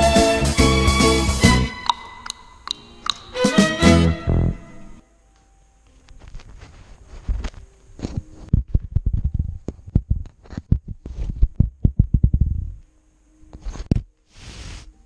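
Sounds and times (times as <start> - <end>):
clicks: 1.8 - 3.4.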